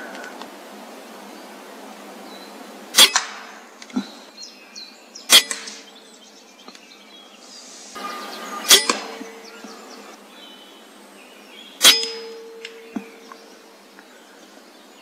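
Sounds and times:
air rifle shots: 3.0 - 3.6, 5.3 - 5.9.

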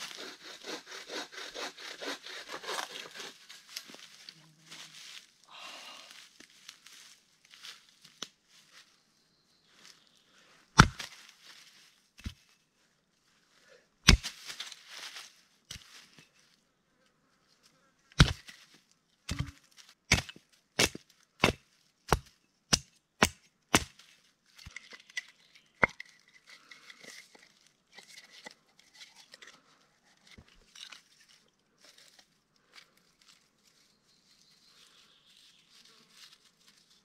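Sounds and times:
tool scraping earth: 0.0 - 4.3, 10.7 - 11.4, 12.2 - 12.6, 14.0 - 14.9, 18.2 - 33.4
digging tool striking earth: 10.8 - 11.2, 14.0 - 14.4, 18.2 - 18.6, 19.3 - 24.0.

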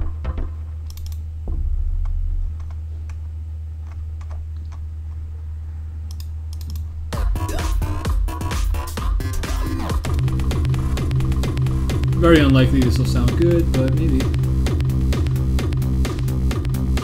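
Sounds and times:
steady low hum: 0.0 - 17.0
computer keyboard and mouse clicks: 0.8 - 1.2, 3.8 - 4.8, 6.1 - 6.9
synth sound: 1.4 - 2.9.

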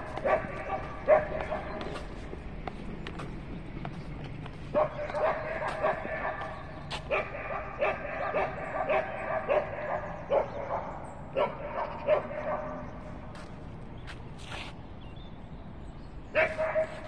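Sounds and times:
dog barking: 0.1 - 2.0, 4.7 - 12.9, 16.4 - 17.0.

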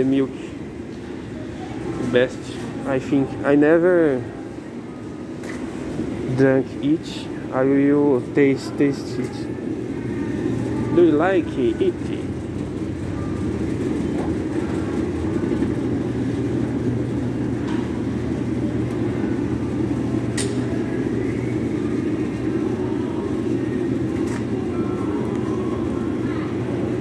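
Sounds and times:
supermarket background rumble: 0.0 - 27.0
low hum: 9.4 - 27.0.

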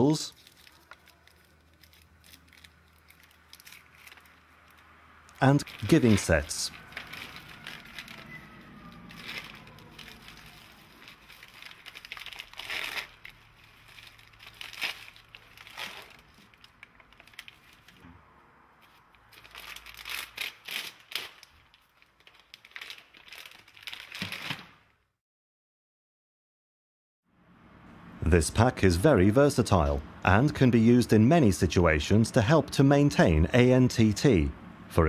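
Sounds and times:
plastic packaging crinkling: 0.1 - 18.0, 18.8 - 24.8.

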